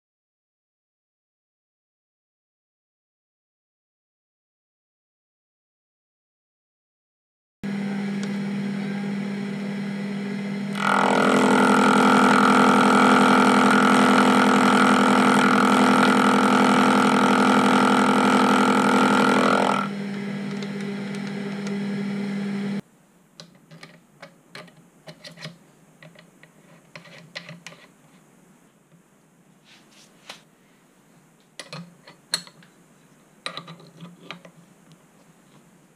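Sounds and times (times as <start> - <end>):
milling machine motor hum: 7.6 - 22.8
end mill cutting metal: 7.7 - 22.8.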